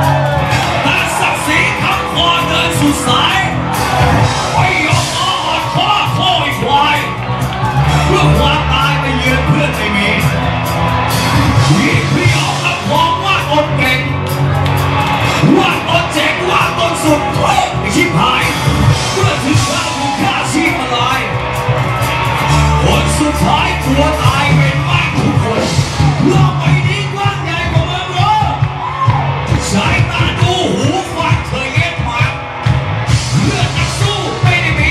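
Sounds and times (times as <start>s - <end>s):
electric guitar: 0.0s - 27.8s, 28.4s - 34.9s
drums: 0.0s - 34.9s
man singing and shouting: 0.8s - 3.6s, 4.2s - 7.1s, 8.0s - 10.4s, 15.4s - 21.3s, 22.7s - 28.6s, 33.3s - 34.9s.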